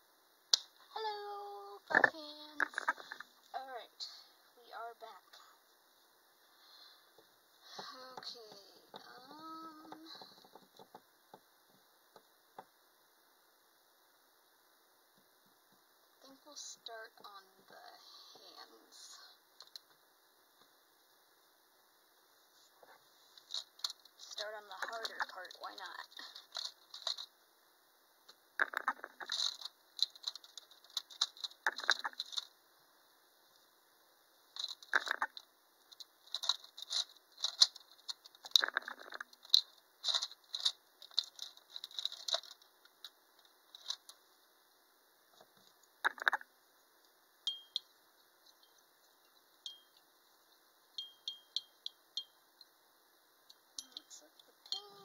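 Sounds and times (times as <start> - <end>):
stick clinking against glass jar: 47.5 - 47.9.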